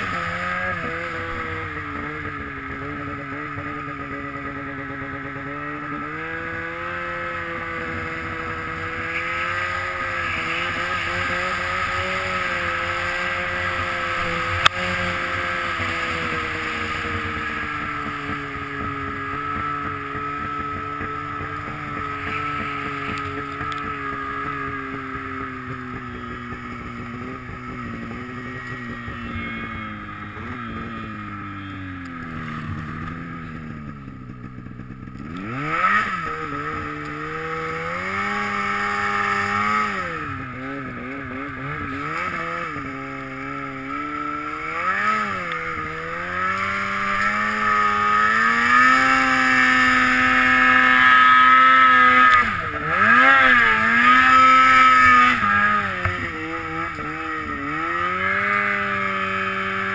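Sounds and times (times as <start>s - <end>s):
snowmobile engine running: 0.0s - 59.9s.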